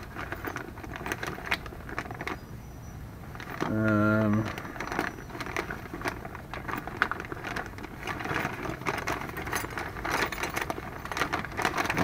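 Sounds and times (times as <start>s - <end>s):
small metal parts rattling: 0.0s - 2.5s, 3.2s - 12.0s
plastic bag crinkling: 3.3s - 12.0s.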